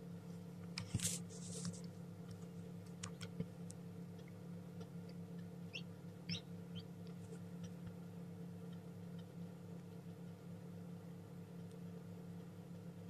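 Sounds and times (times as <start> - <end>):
steady low hum: 0.0 - 13.0
chick peeping: 5.7 - 7.1.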